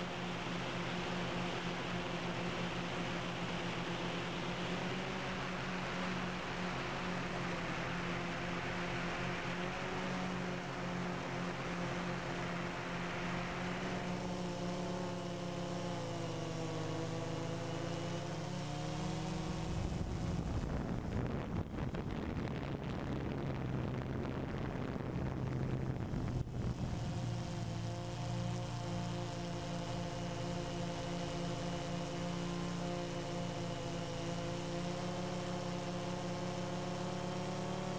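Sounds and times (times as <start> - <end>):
drone propellers humming: 0.0 - 37.9
wind buffeting microphone: 19.6 - 27.1.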